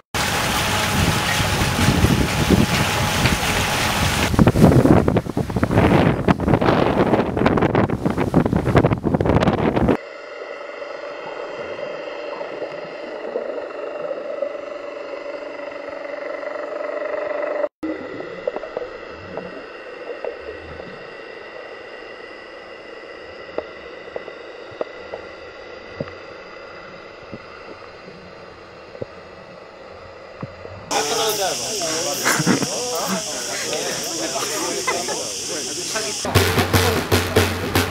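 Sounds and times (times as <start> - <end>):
muffled underwater hum: 0.2 - 37.8
faint constant tones: 8.8 - 36.4.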